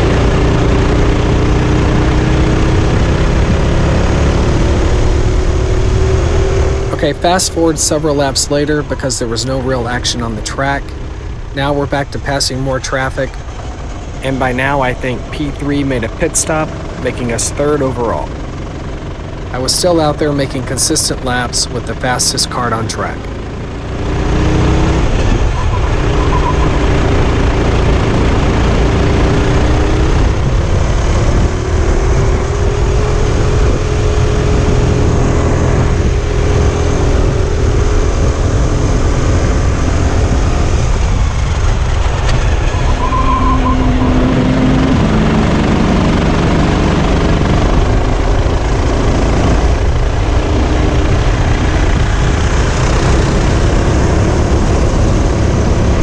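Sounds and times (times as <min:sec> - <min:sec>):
kart engine racing: 0:00.0 - 0:56.0
wind rushing on microphone: 0:29.4 - 0:56.0.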